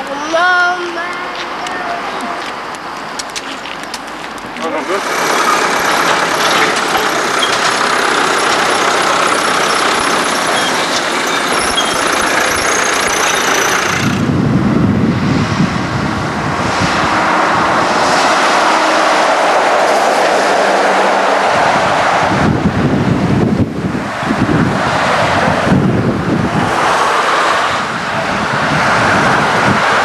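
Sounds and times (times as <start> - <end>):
truck and trailer road noise: 0.0 - 30.0
tractor engine running: 3.0 - 15.1.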